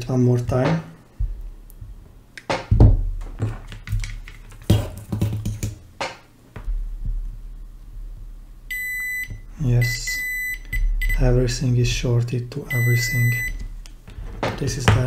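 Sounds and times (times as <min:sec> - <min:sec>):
hand tools knocking and clattering: 0:02.5 - 0:06.2
multimeter steady high beep: 0:08.7 - 0:11.3, 0:12.7 - 0:13.7.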